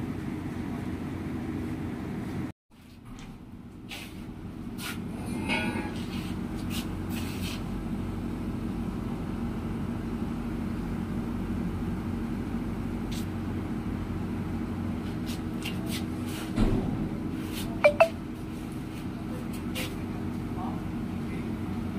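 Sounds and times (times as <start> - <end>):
dull thump: 16.6 - 17.4.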